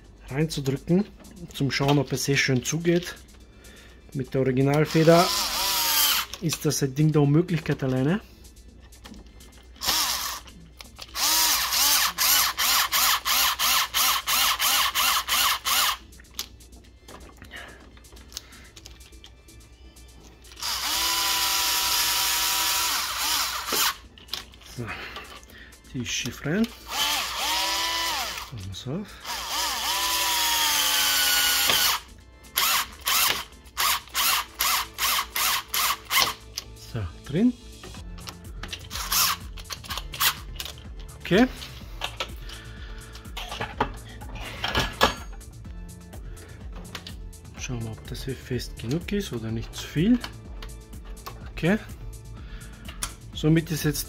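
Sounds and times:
cordless screwdriver motor whirring: 4.9s - 6.4s, 9.8s - 16.0s, 20.5s - 24.1s, 26.6s - 28.6s, 29.2s - 36.4s, 38.8s - 40.5s.

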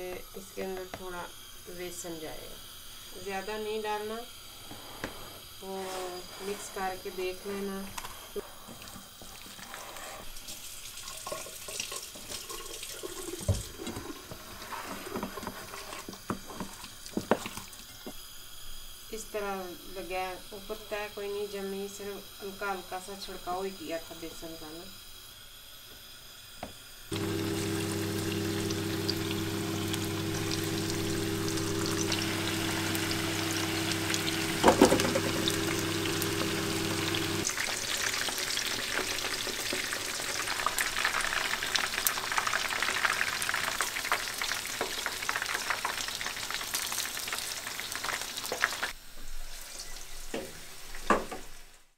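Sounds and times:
low hum: 27.1s - 37.5s
chicken deep-frying in oil: 27.1s - 51.7s.

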